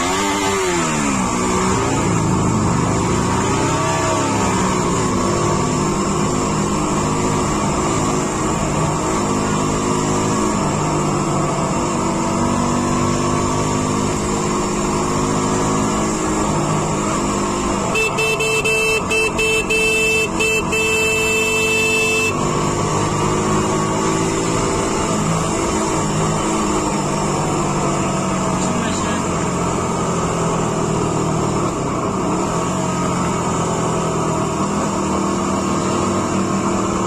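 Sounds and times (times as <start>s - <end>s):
vehicle engine running: 4.3s - 37.0s
horn short toots: 17.8s - 22.5s.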